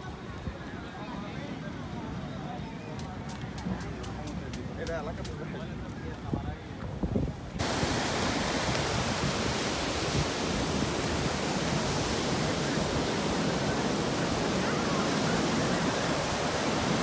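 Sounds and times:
surf washing over beach: 7.6s - 17.0s.

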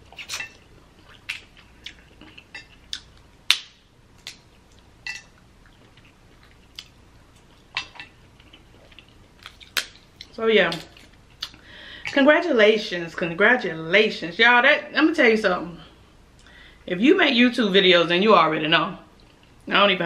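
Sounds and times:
crab shells cracking: 7.8s - 11.6s.

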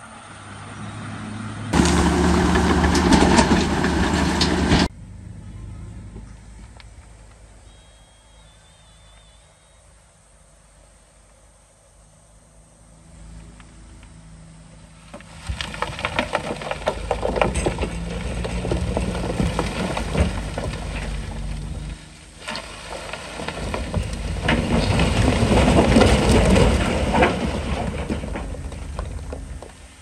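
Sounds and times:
heavy diesel machinery running: 1.0s - 6.8s, 14.0s - 30.0s
rock tumbling and rattling: 1.7s - 4.9s, 15.0s - 30.0s.

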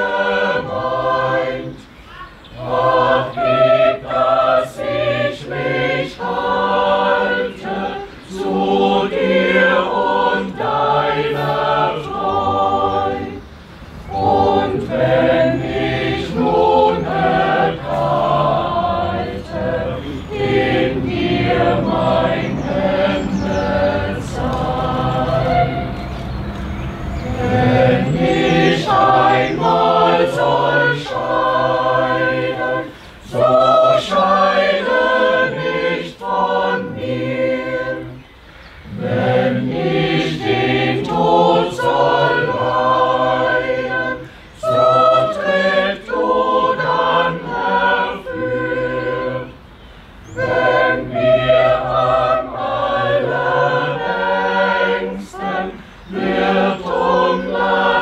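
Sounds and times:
choir singing a cappella: 0.0s - 58.0s.

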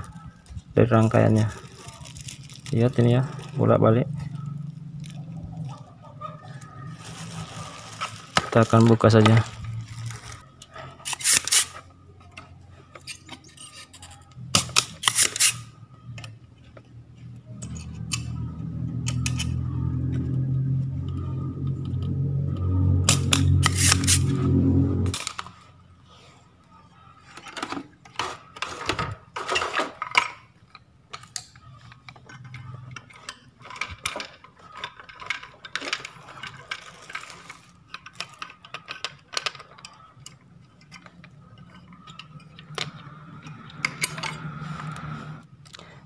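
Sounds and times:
metallic clicks and clatter: 29.4s - 44.5s.

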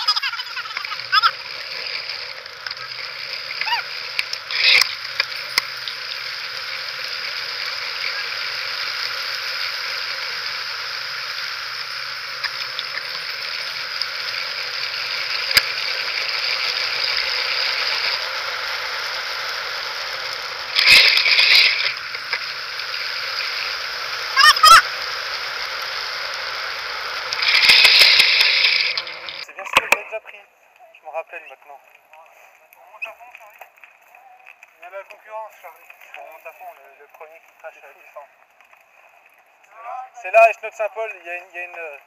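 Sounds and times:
bicycle tyres rolling on pavement: 0.0s - 30.8s, 31.4s - 42.0s
bicycle clicks and rattles: 12.4s - 23.5s, 27.1s - 29.9s.

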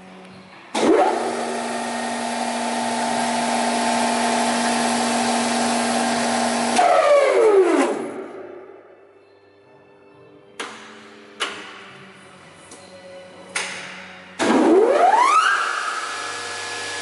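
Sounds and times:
wood shaper motor humming and whining: 15.6s - 17.0s.

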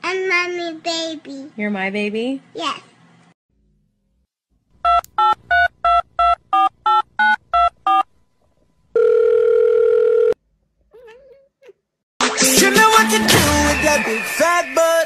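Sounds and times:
steady telephone tone: 9.0s - 10.4s.

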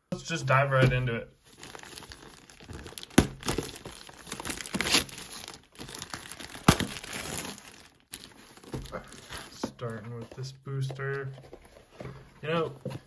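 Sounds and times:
cardboard boxes crinkling: 1.4s - 10.2s.

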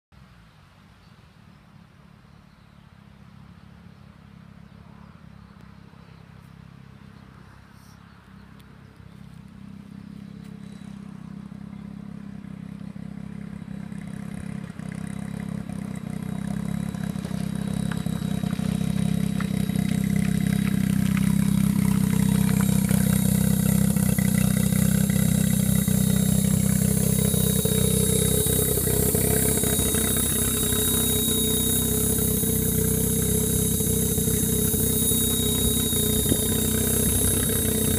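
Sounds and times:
car engine idling: 9.3s - 37.9s
thin high whine: 16.2s - 37.9s.

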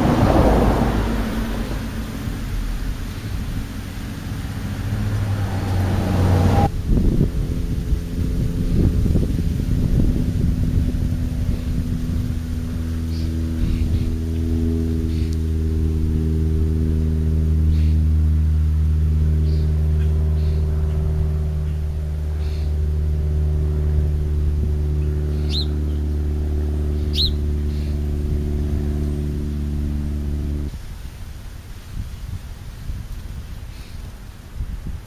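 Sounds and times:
low engine drone: 0.0s - 31.6s
high rising bird chirps: 25.0s - 26.2s, 26.9s - 28.2s.

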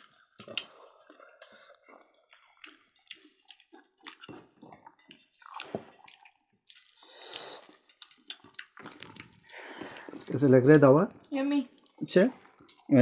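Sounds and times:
wet chewing: 0.0s - 13.0s
breathy hiss: 6.9s - 7.7s.

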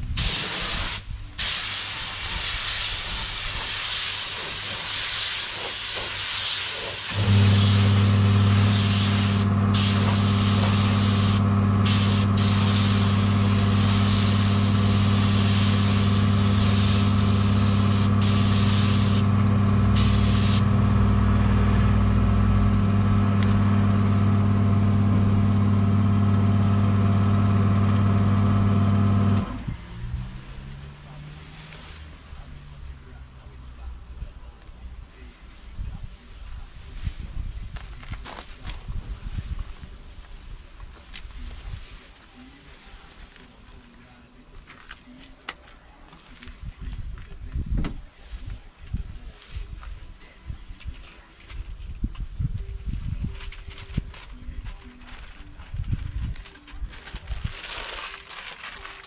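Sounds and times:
compressed air hissing: 0.1s - 19.3s, 19.9s - 20.7s
electric motor humming: 7.1s - 29.5s.

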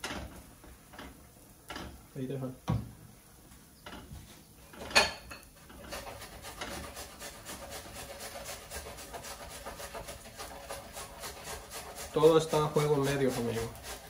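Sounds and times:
spatula scraping a pan: 3.9s - 14.0s
onion sizzling in oil: 5.0s - 14.0s.

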